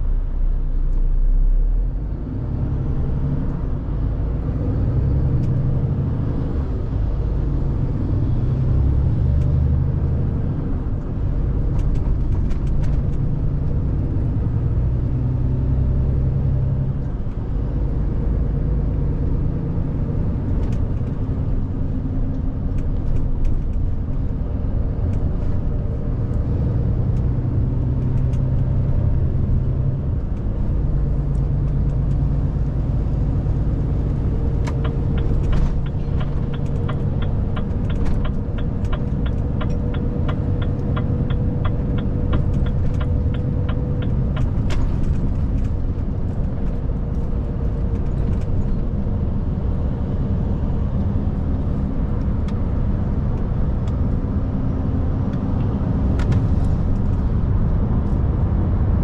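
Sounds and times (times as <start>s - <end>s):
diesel truck engine rumbling: 0.0s - 59.0s.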